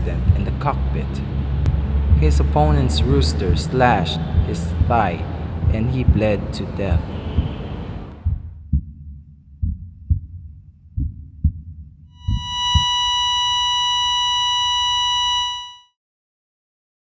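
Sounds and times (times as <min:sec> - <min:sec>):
heartbeat thumps: 0:00.0 - 0:00.7, 0:01.6 - 0:13.5
heart monitor flatline beep: 0:12.2 - 0:15.9.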